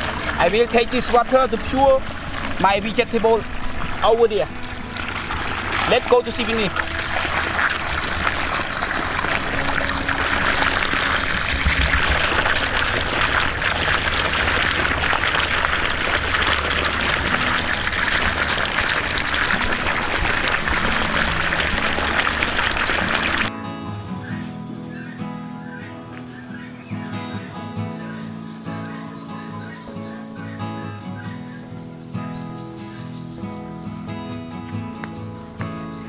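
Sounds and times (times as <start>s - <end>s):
water gushing from pipe: 0.0s - 23.5s
water splashing on wet ground: 0.0s - 23.5s.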